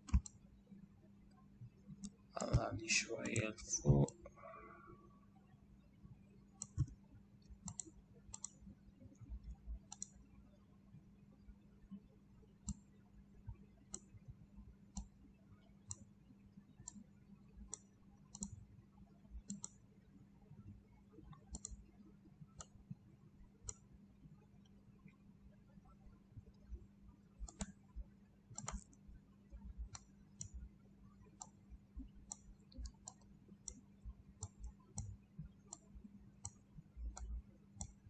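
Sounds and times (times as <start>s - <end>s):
computer mouse clicking: 0.0s - 0.4s, 1.9s - 4.3s, 6.6s - 8.7s, 9.3s - 10.3s, 12.6s - 14.3s, 14.9s - 18.7s, 19.4s - 19.9s, 20.6s - 24.0s, 26.4s - 27.9s, 28.5s - 38.0s
faint low hum: 0.0s - 38.0s.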